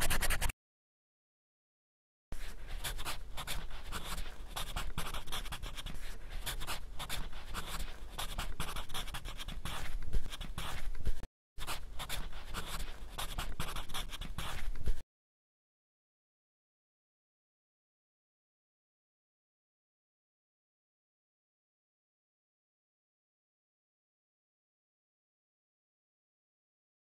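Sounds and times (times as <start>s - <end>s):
pen scratching on paper: 0.0s - 0.5s, 2.4s - 15.0s.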